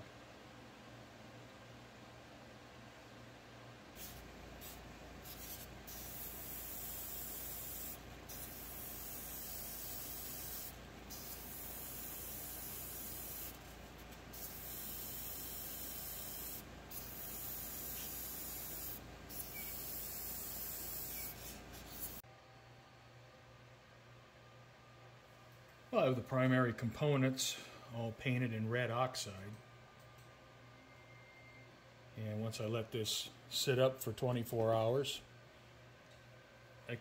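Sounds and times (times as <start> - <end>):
airbrush air hiss: 4.0 - 22.2.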